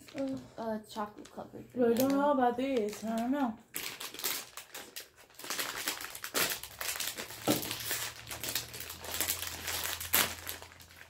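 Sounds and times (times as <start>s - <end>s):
plastic snack bag crackling: 0.0s - 11.0s.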